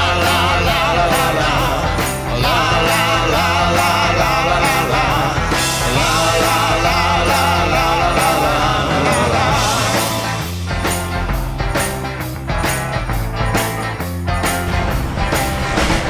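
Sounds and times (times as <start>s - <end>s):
rock song with steady beat: 0.0s - 16.0s.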